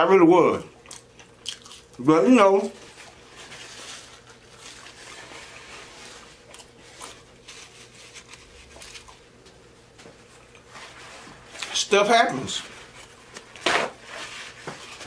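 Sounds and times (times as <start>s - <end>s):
paper napkin rustling on skin: 2.6s - 9.3s.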